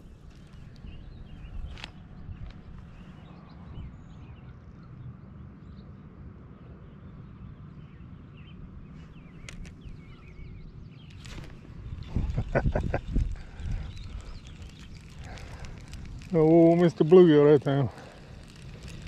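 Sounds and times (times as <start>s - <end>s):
wind rumbling on microphone: 0.0s - 4.5s, 8.6s - 19.0s
small birds chirping: 0.0s - 19.0s
sharp clicks: 11.0s - 19.0s.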